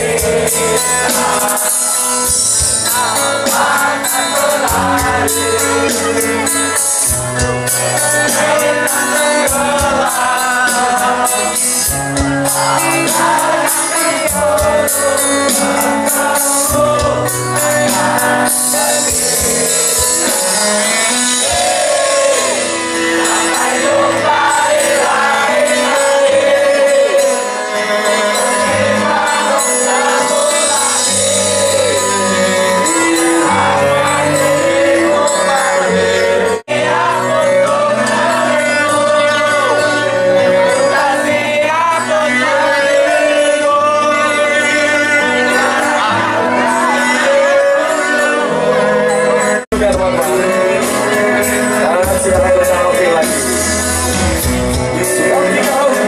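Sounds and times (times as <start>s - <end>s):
person singing: 0.0s - 56.0s
punk rock band playing: 0.0s - 56.0s.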